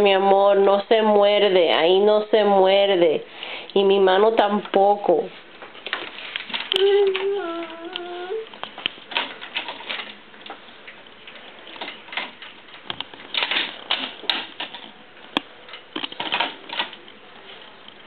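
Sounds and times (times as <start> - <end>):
plastic toys clacking on crib rail: 8.6 - 10.2, 11.7 - 15.0, 15.7 - 17.1.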